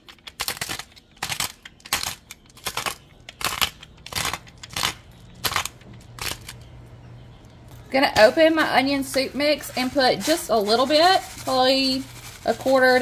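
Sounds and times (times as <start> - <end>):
pepper grinder crunching: 0.0 - 6.7.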